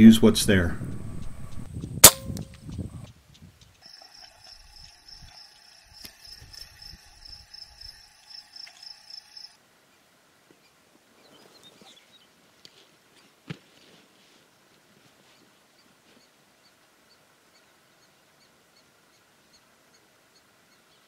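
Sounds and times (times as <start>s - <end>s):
air rifle firing: 2.0s - 2.5s
insect chirping: 3.8s - 9.6s.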